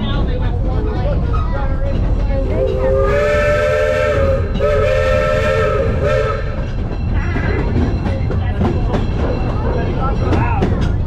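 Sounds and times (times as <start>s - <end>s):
train rumbling: 0.0s - 11.0s
steam locomotive chime whistle: 2.5s - 7.4s.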